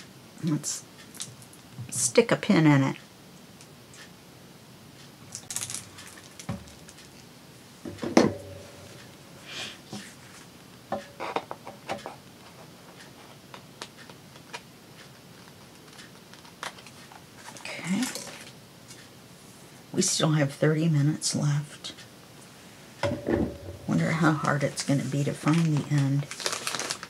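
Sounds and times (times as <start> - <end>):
knock on work table: 7.9 - 8.7, 23.0 - 23.9.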